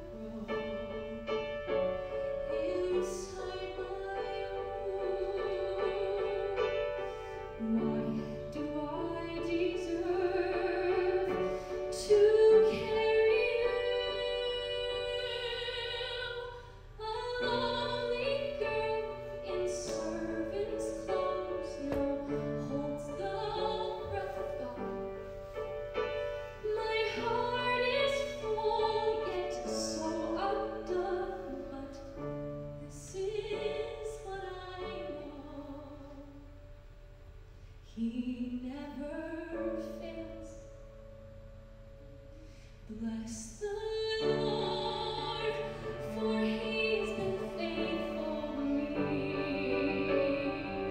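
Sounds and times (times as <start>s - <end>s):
piano: 0.0s - 50.9s
woman singing ballad: 7.6s - 25.0s
cello: 44.1s - 50.9s.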